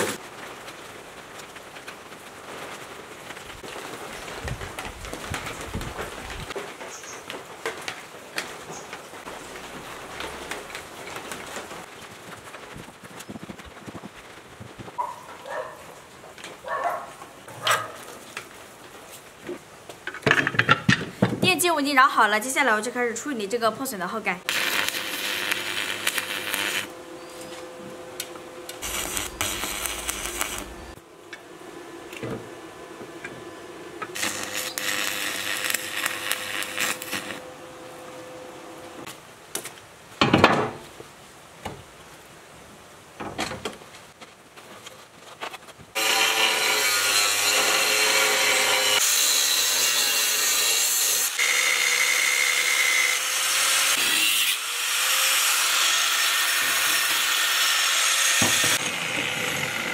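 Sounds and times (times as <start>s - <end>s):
metal scraping and knocking: 20.1s - 21.4s
power tool cutting steel: 24.5s - 31.0s, 34.0s - 37.5s, 46.0s - 59.9s.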